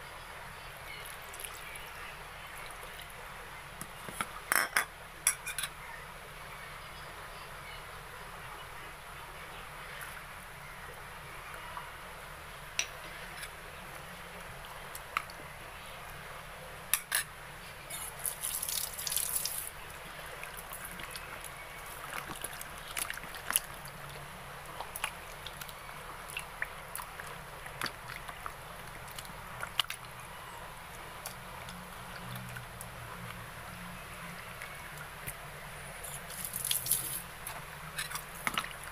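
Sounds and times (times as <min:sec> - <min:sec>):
liquid splashing: 0:18.0 - 0:30.2, 0:36.0 - 0:38.9.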